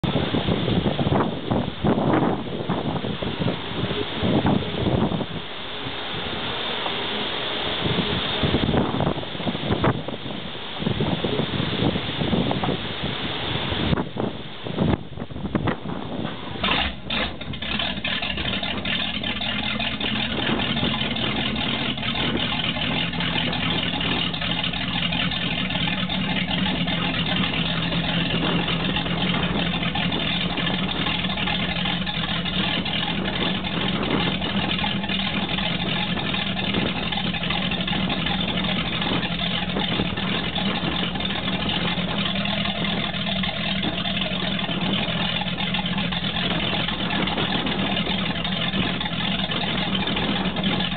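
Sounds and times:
boat engine idling: 0.0s - 50.9s
exhaust water splashing: 0.0s - 50.9s.

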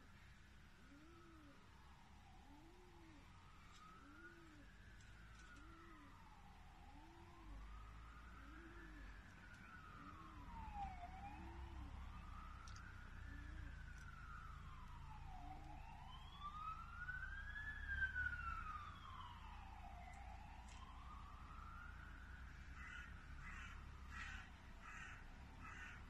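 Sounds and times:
ambulance siren wailing: 0.9s - 26.0s
crow cawing: 22.7s - 26.0s.

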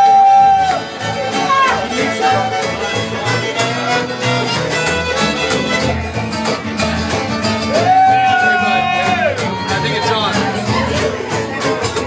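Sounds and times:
fiddles playing: 0.0s - 6.6s
strummed acoustic guitars: 0.0s - 12.0s.

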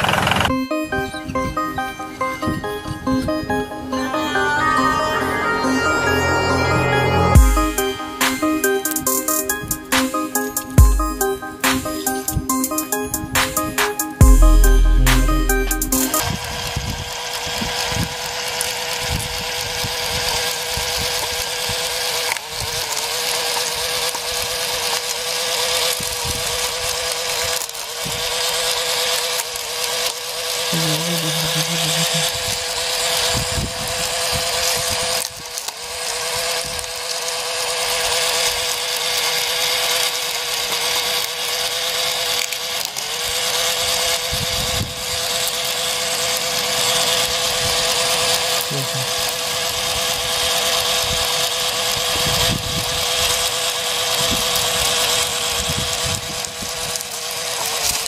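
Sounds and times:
small electric motor whining: 16.3s - 58.0s.

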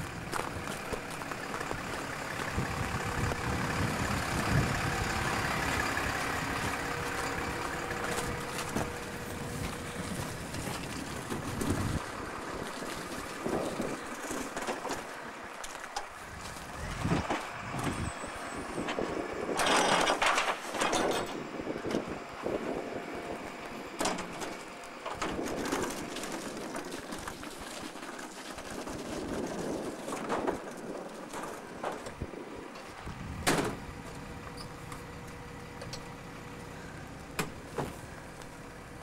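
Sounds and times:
refuse truck engine running: 0.0s - 39.0s
metallic clanks and knocks: 19.6s - 22.1s.

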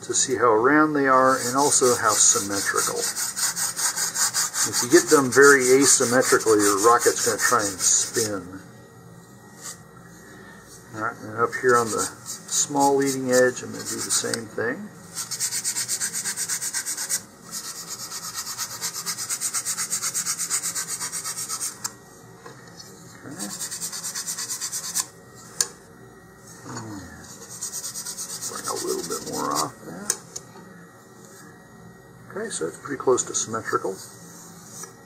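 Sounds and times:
sandpaper rubbing on wood: 1.2s - 8.4s, 11.6s - 14.3s, 15.1s - 21.8s, 23.4s - 25.1s, 27.3s - 29.7s.

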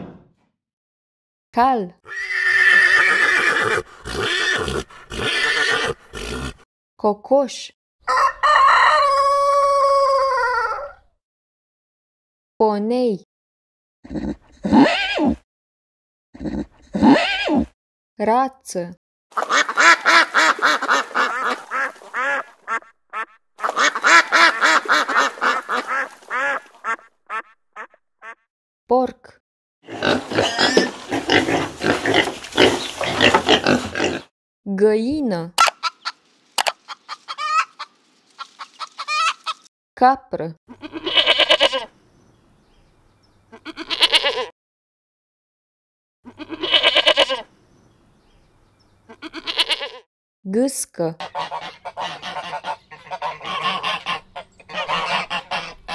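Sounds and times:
goat bleating: 2.1s - 6.6s, 38.4s - 39.6s, 40.7s - 41.9s, 43.5s - 44.5s, 46.3s - 47.5s, 49.1s - 50.0s, 51.4s - 55.9s
ducks quacking: 19.3s - 28.4s, 35.6s - 39.7s, 51.2s - 55.9s.

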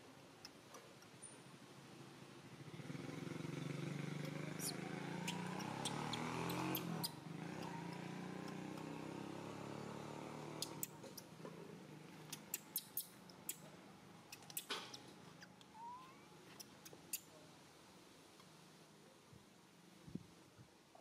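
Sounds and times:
engine hum: 0.0s - 17.3s
sharp clicks: 12.3s - 13.7s, 14.3s - 15.7s.

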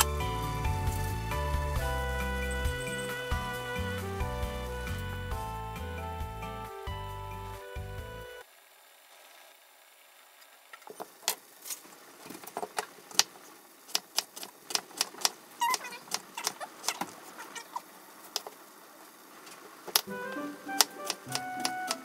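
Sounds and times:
background music: 0.0s - 8.4s, 20.1s - 22.0s.

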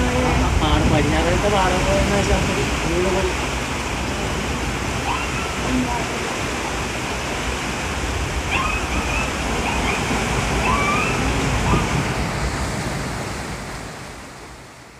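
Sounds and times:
seawater rushing and sloshing: 0.0s - 14.9s
distant voices calling out: 4.7s - 12.2s.

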